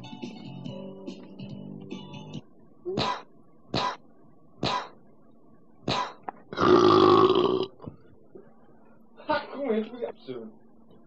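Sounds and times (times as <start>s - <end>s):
person burping or coughing: 5.9s - 7.8s.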